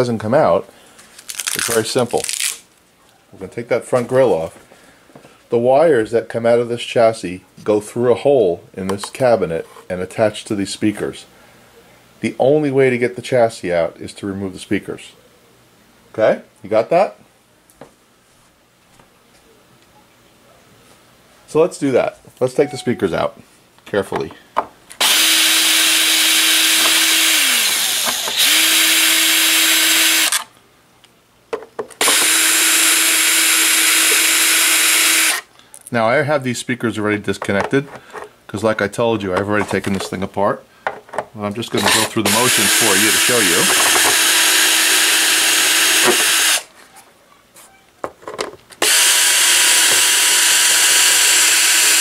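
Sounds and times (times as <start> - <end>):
cordless drill motor running: 25.0 - 30.4, 32.0 - 35.4, 41.8 - 46.7, 48.8 - 52.0.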